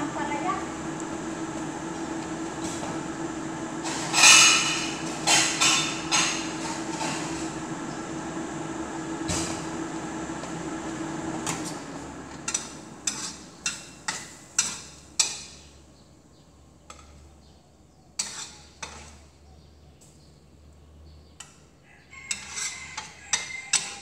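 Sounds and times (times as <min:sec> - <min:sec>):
steady hum: 0:00.0 - 0:13.1
metal spatula scraping a wok: 0:13.0 - 0:13.9, 0:18.2 - 0:19.3, 0:22.2 - 0:24.0.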